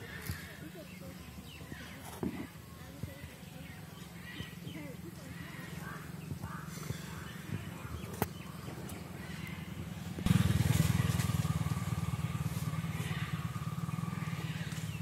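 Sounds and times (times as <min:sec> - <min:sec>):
small engine running: 0:08.4 - 0:15.0.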